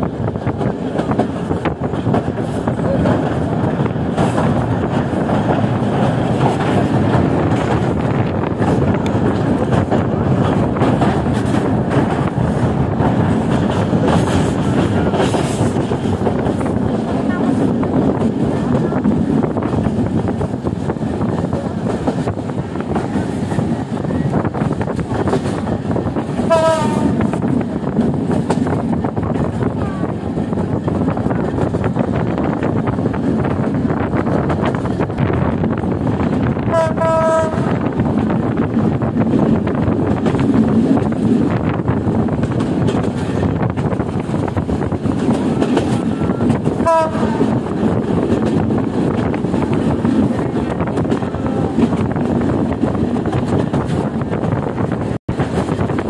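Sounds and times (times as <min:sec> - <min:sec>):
train rumbling on track: 0:00.0 - 0:56.0
train horn blast: 0:26.4 - 0:27.3, 0:36.7 - 0:37.8, 0:46.0 - 0:47.6.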